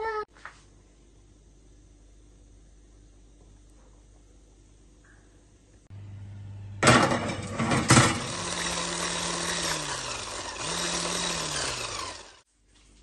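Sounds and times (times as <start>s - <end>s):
electric hand mixer beating cream: 7.9s - 12.4s.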